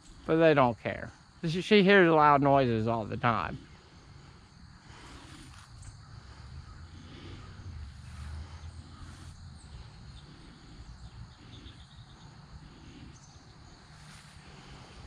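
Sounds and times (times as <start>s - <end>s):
low steady rumble: 3.6s - 15.0s
faint bird chirps: 5.4s - 15.0s.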